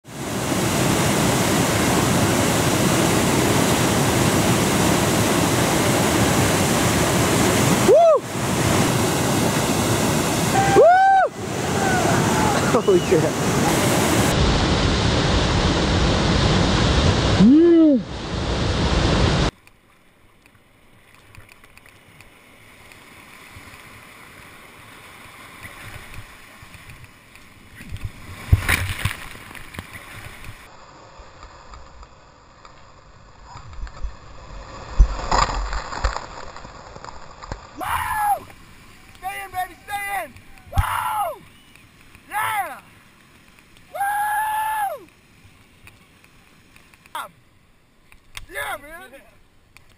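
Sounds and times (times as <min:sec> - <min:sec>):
waterfall rushing: 0:00.1 - 0:19.5, 0:37.7 - 0:43.2.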